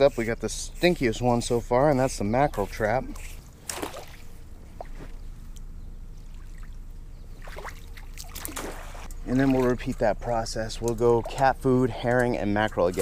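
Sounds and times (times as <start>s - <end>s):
splashing in shallow water: 3.2s - 5.0s, 7.4s - 10.0s.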